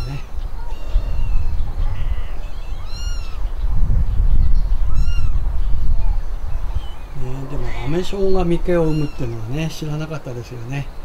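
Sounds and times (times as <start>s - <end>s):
kitten mewing: 0.0s - 3.4s, 7.2s - 9.6s
steady low rumble: 0.0s - 9.0s.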